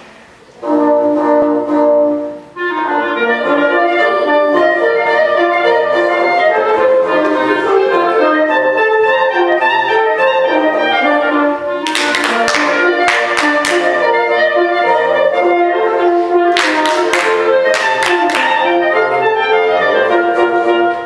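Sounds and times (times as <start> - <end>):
woodwind quintet playing: 0.4 - 21.0.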